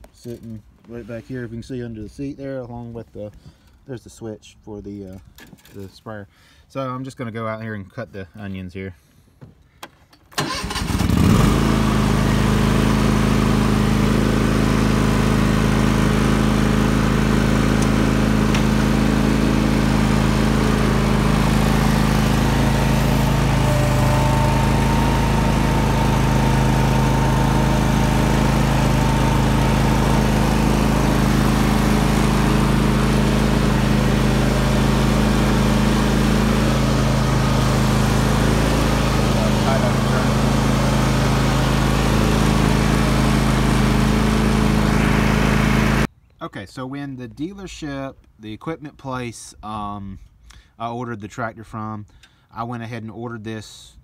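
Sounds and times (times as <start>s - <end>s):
riding mower engine running: 10.3s - 46.1s.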